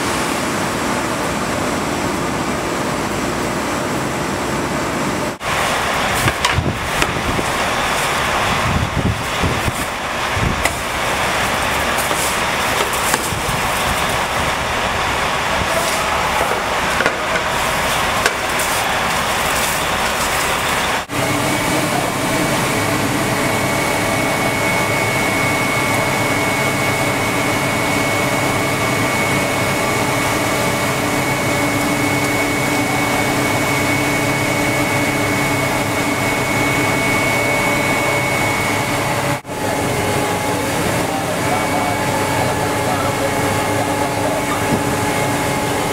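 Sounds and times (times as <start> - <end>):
snow-thrower engine and blower drone: 0.0 - 45.9.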